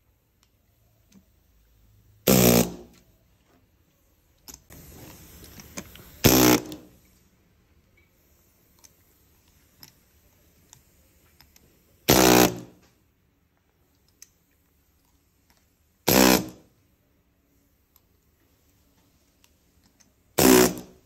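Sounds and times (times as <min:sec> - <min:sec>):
upholstery tool firing bursts: 0:02.3 - 0:03.0, 0:06.2 - 0:06.9, 0:12.1 - 0:12.8, 0:16.1 - 0:16.7, 0:20.4 - 0:21.0.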